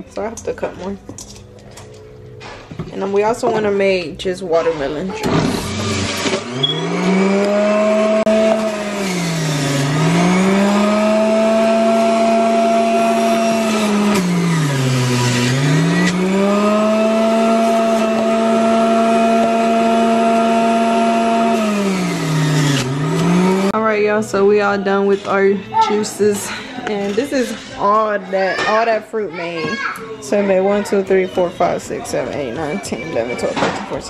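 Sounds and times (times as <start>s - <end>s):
juicer motor whining: 5.2s - 23.8s.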